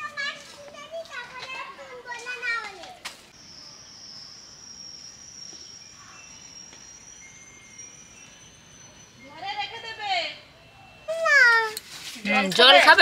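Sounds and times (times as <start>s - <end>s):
insect singing high note: 3.4s - 9.7s.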